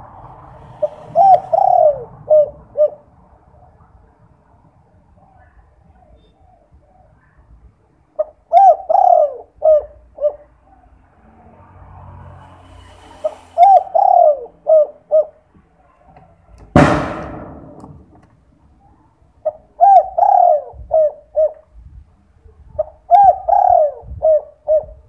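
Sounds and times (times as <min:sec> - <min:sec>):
dove cooing: 0:00.7 - 0:03.1, 0:08.2 - 0:10.8, 0:13.2 - 0:15.6, 0:18.8 - 0:21.9, 0:22.7 - 0:25.0
sudden loud rush of noise: 0:11.5 - 0:14.0.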